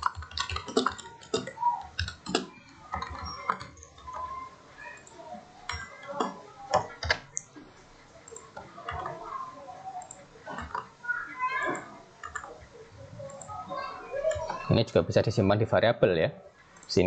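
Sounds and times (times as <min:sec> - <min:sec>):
computer keyboard key clicks: 0:00.0 - 0:04.2.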